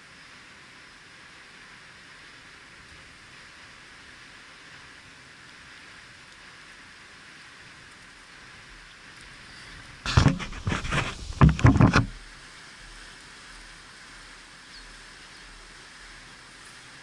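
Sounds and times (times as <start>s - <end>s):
faint steady hiss: 0.0s - 17.0s
camera handling scraping and knocking: 10.1s - 12.2s.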